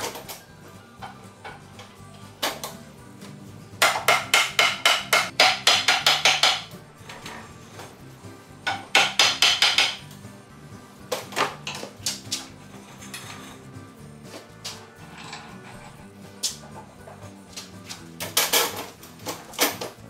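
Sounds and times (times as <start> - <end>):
hammer striking wooden spoke: 3.8 - 6.7, 8.7 - 10.0.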